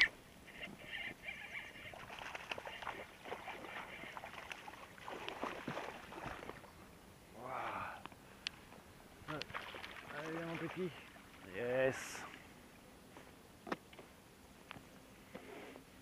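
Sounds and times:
fish thrashing and splashing: 1.9 - 6.6.

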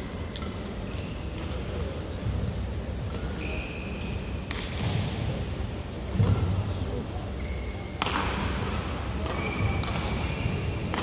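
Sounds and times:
shoes squealing on court floor: 3.3 - 4.2, 7.4 - 8.0, 9.3 - 10.9
racket striking shuttlecock: 8.0 - 10.2.

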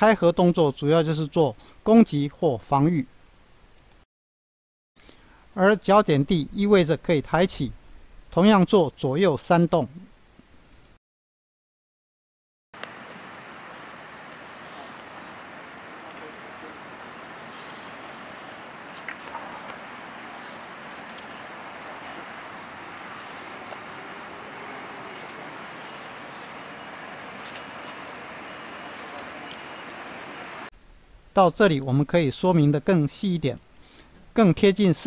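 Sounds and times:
outdoor background hiss: 0.0 - 4.0, 5.0 - 11.0, 12.8 - 35.0
night insects chirping: 12.8 - 30.7.

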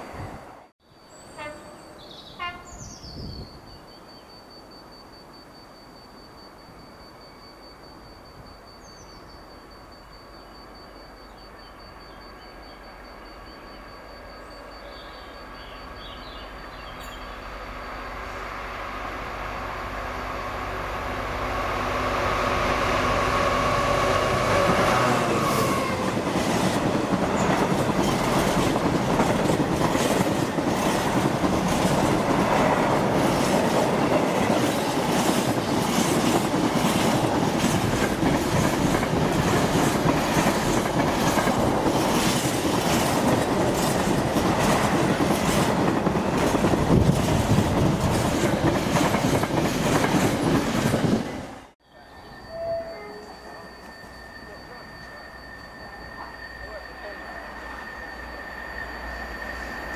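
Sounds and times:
locomotive engine passing: 16.5 - 59.9
train wheels clacking on track: 23.1 - 51.5.

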